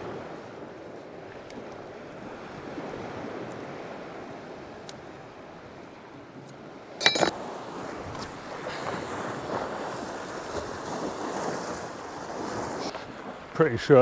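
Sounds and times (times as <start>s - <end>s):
waves washing on rocky shore: 6.7s - 14.0s
sharp metallic clink: 7.0s - 7.3s.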